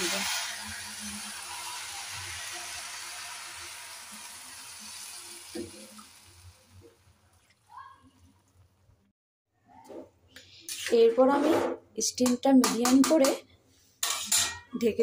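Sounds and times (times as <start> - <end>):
water sizzling in hot pan: 0.0 - 7.7.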